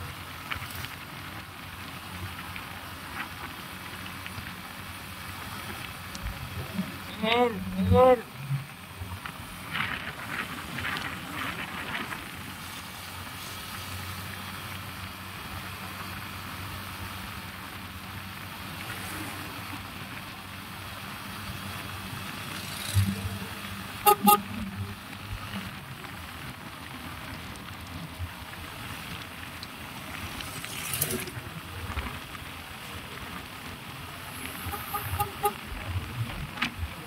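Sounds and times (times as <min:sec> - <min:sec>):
vehicle and road noise: 0:00.0 - 0:37.0
vehicle horn honks: 0:24.0 - 0:24.8, 0:34.6 - 0:35.6.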